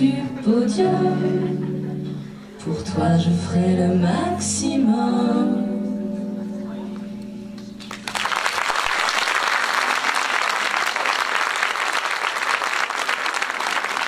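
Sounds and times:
person singing: 0:00.0 - 0:07.2
guitar chord: 0:01.0 - 0:07.8
audience applause: 0:07.8 - 0:14.0.

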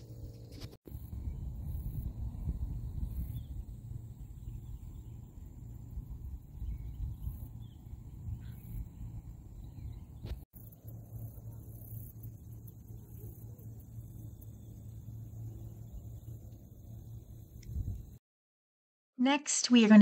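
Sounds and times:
wind rumble on microphone: 0:00.0 - 0:10.5, 0:15.9 - 0:18.2
faint bird chirps: 0:06.6 - 0:12.2.

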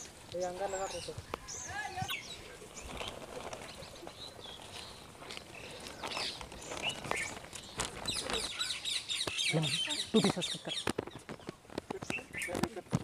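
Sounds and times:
leaves rustling: 0:00.0 - 0:13.0
small birds chirping: 0:00.0 - 0:13.0
plastic packet handled: 0:02.7 - 0:08.8.

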